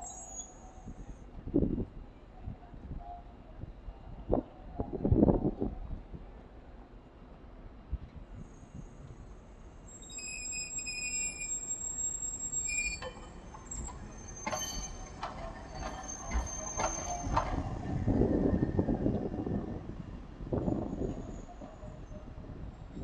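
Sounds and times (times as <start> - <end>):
tram wheels squealing on rails: 0.0 - 1.2, 8.4 - 23.0
wheels clacking over rail joints: 13.0 - 18.1.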